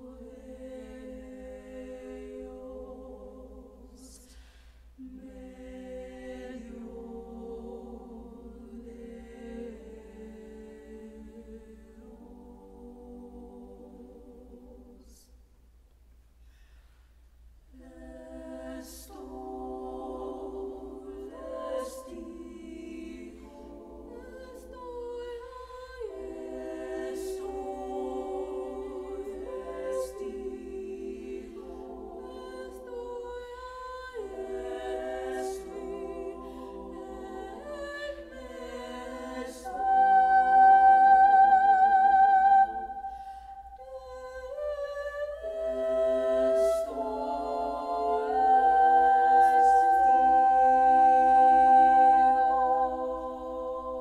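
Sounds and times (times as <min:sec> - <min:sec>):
women's choir singing a cappella: 0:00.0 - 0:15.4, 0:17.7 - 0:54.0.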